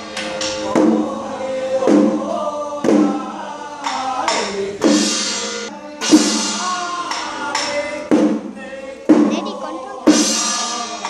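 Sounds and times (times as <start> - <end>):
men chanting and calling: 0.6 - 11.0
ringing percussion strikes: 4.8 - 7.7.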